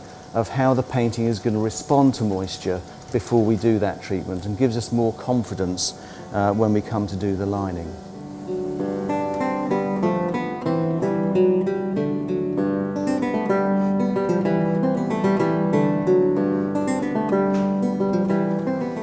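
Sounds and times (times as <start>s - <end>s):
plucked acoustic guitar melody: 8.0s - 19.0s.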